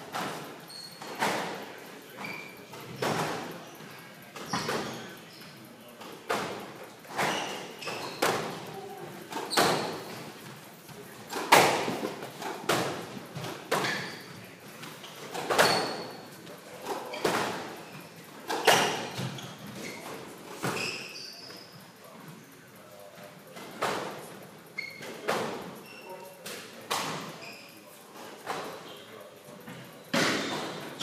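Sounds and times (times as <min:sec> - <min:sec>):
shoe squeaks on wooden floor: 0:00.6 - 0:01.6, 0:02.2 - 0:03.5, 0:04.4 - 0:05.6, 0:07.1 - 0:08.7, 0:09.3 - 0:10.2, 0:13.7 - 0:14.4, 0:15.0 - 0:16.4, 0:17.0 - 0:21.8, 0:24.7 - 0:25.2, 0:25.8 - 0:26.3, 0:27.2 - 0:27.9.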